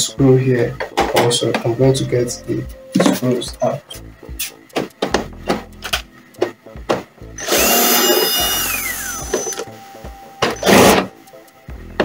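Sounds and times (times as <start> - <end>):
drill clicks: 7.4 - 9.6
drill motor whine: 7.4 - 9.6.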